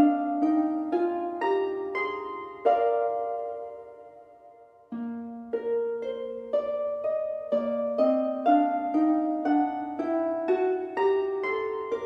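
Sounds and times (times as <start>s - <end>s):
plucked harp-like melody: 0.0s - 12.0s.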